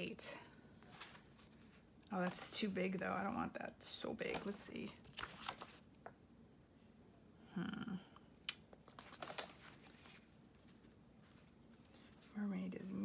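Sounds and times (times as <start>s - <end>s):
book pages rustling: 0.8s - 6.0s, 8.7s - 12.4s
low hum of a voice: 7.4s - 8.2s, 12.2s - 13.0s.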